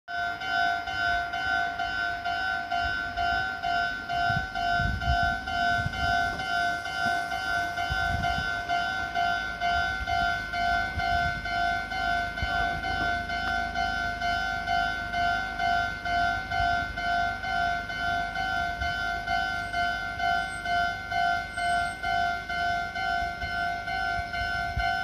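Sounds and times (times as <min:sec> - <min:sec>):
level-crossing warning bell ringing: 0:00.1 - 0:25.0.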